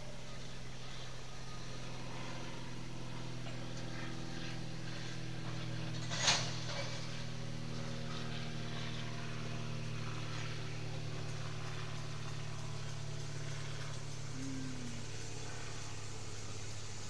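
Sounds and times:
train rumbling hum: 0:11.7 - 0:17.0.

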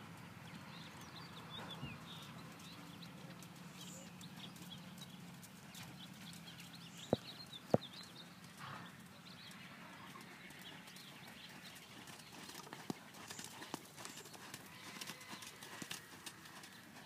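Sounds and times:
horse hoofbeats on sand: 0:03.9 - 0:08.9, 0:10.0 - 0:17.0.

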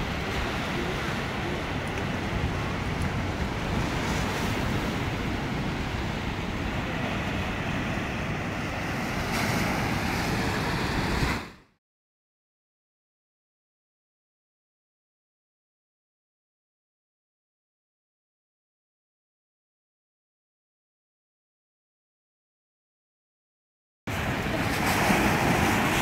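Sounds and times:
wind buffeting microphone: 0:00.0 - 0:11.6, 0:24.1 - 0:26.0
surf breaking on beach: 0:00.0 - 0:11.7, 0:24.1 - 0:26.0.

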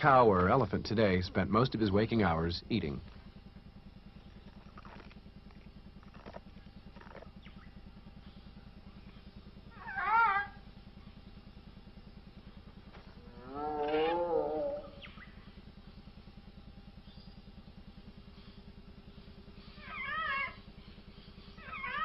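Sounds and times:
steady low hum: 0:00.0 - 0:22.0
warbling creature call: 0:13.4 - 0:15.1.

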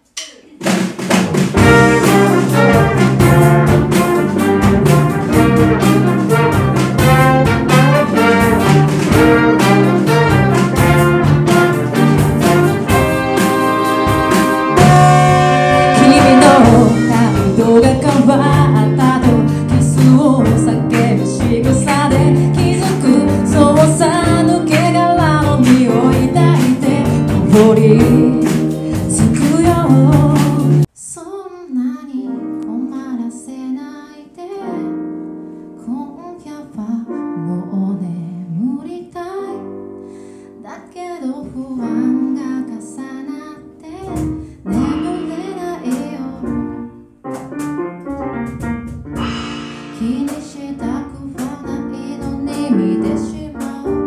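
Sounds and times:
upbeat live band: 0:00.5 - 0:30.9, 0:44.0 - 0:54.0
keyboard chords: 0:01.3 - 0:30.9, 0:41.3 - 0:54.0
woman singing: 0:14.8 - 0:35.0, 0:35.8 - 0:39.7, 0:40.5 - 0:46.8, 0:50.0 - 0:54.0.

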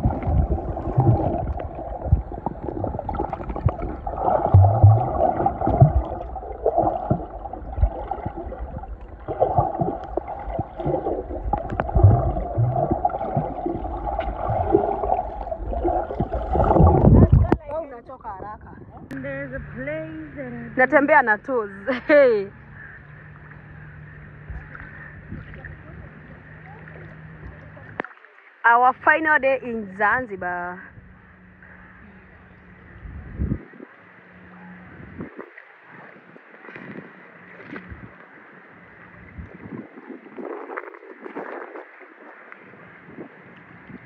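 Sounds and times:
pool water splashing: 0:00.0 - 0:19.4, 0:33.9 - 0:44.0
muffled underwater sloshing: 0:00.0 - 0:30.2, 0:31.0 - 0:44.0
small underwater knocks: 0:09.3 - 0:17.8.

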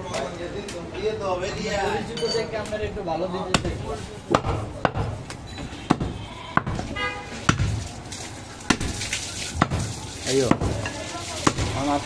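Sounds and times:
cleaver chopping on wooden block: 0:03.5 - 0:05.2, 0:05.9 - 0:06.9, 0:10.5 - 0:10.8.

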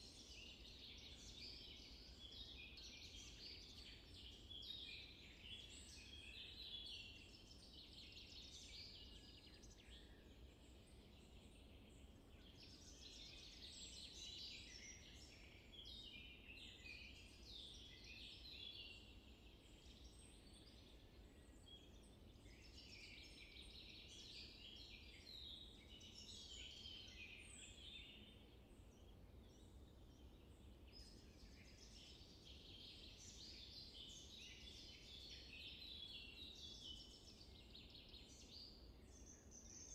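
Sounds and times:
small birds chirping: 0:00.0 - 0:39.9.

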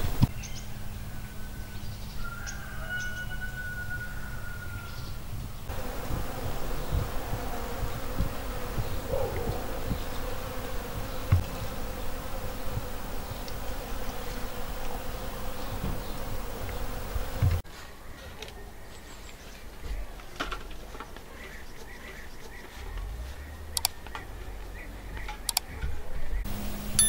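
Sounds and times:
honeybees buzzing: 0:00.0 - 0:01.4, 0:05.6 - 0:17.6, 0:26.4 - 0:27.0.

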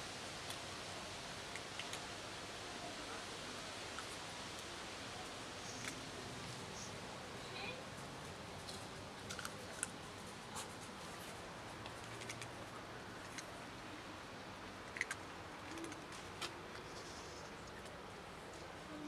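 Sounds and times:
cats crunching dry kibble: 0:01.4 - 0:02.2, 0:08.0 - 0:13.8, 0:14.6 - 0:18.8.

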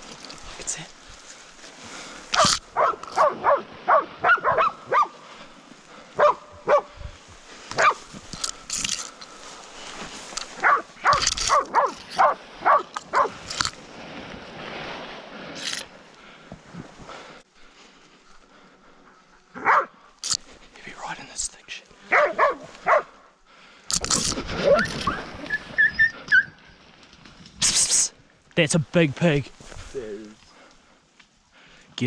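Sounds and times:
dogs barking: 0:02.4 - 0:05.2, 0:06.1 - 0:06.9, 0:07.7 - 0:08.0, 0:10.6 - 0:13.4, 0:19.5 - 0:20.0, 0:22.1 - 0:23.2.

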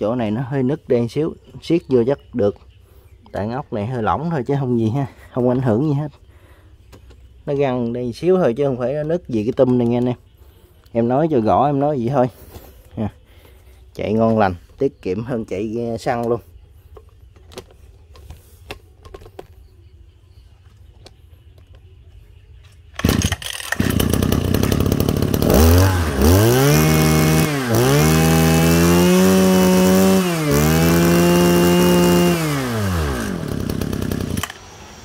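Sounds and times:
small two-stroke engine revving: 0:23.0 - 0:35.0.

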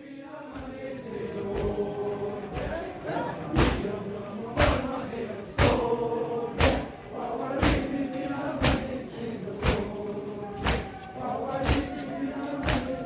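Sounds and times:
voices chanting a lament: 0:00.0 - 0:13.0
chest beating slaps: 0:03.5 - 0:03.9, 0:04.6 - 0:04.9, 0:05.6 - 0:05.9, 0:06.5 - 0:07.0, 0:07.6 - 0:08.0, 0:08.6 - 0:09.0, 0:09.6 - 0:09.9, 0:10.6 - 0:10.9, 0:12.6 - 0:13.0.

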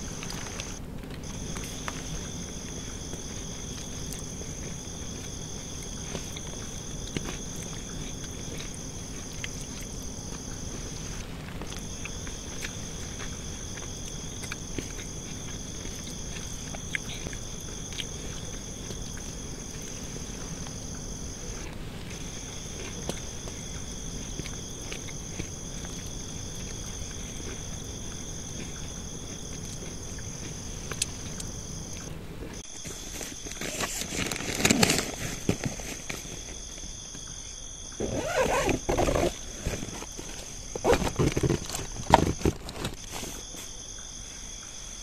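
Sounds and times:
crickets trilling: 0:00.0 - 0:45.0.

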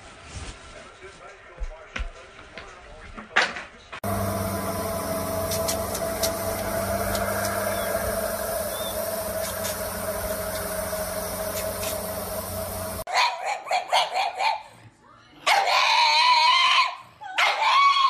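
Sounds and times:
sprinkler spraying water: 0:04.0 - 0:13.1
steady hum: 0:04.0 - 0:13.1.

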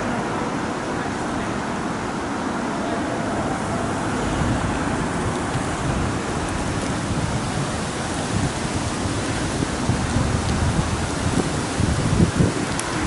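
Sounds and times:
street noise hiss: 0:00.0 - 0:13.0
low rumble: 0:03.4 - 0:12.4.

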